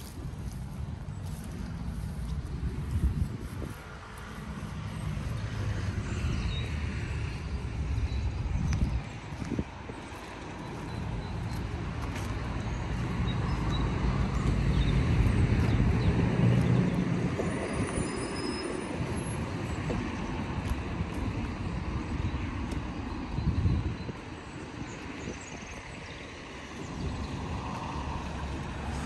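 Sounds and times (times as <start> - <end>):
vehicle passing: 0.0 - 21.8
traffic hum: 0.0 - 29.0.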